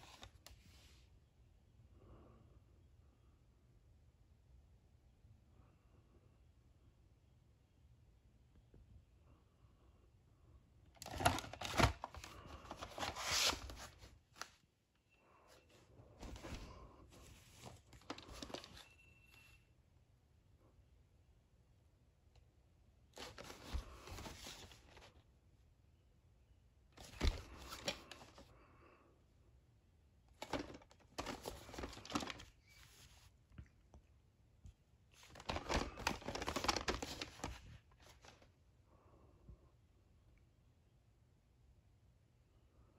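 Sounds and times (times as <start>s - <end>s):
cassette sleeves rustling: 11.0s - 14.6s, 15.3s - 18.9s, 23.2s - 25.2s, 30.4s - 33.5s.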